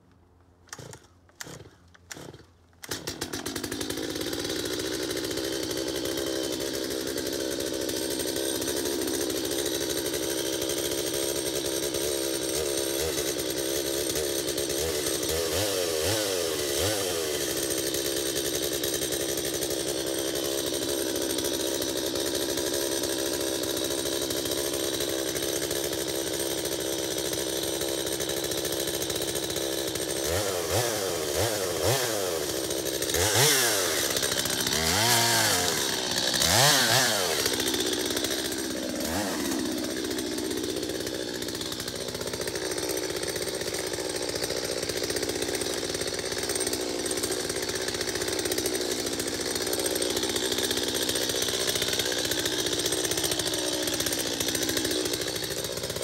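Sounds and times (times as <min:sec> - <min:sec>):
chainsaw cutting wood: 0:00.0 - 0:56.0
chainsaw idling and revving: 0:00.0 - 0:56.0.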